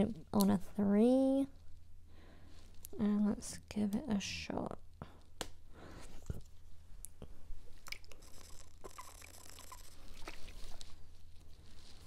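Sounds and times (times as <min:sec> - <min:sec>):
person gulping water: 0:07.8 - 0:10.8
hissing sip through lid: 0:08.1 - 0:10.6.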